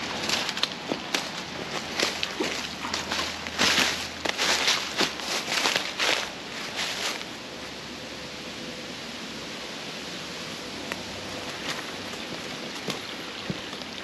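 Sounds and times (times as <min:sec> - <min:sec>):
footsteps in dry leaves: 0:00.0 - 0:07.8, 0:11.2 - 0:13.8
creek water running over rocks: 0:00.0 - 0:14.0.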